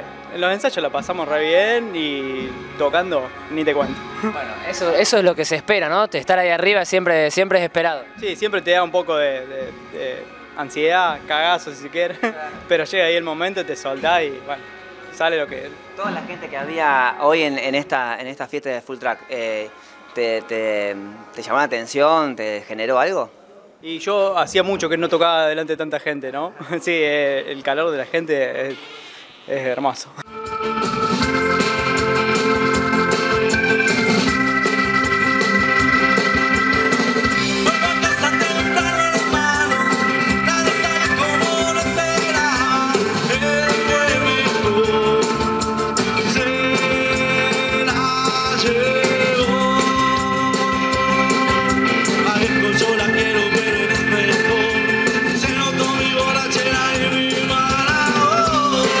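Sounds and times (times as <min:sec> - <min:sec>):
held keyboard chords: 0:30.2 - 0:59.0
live band playing: 0:30.2 - 0:59.0.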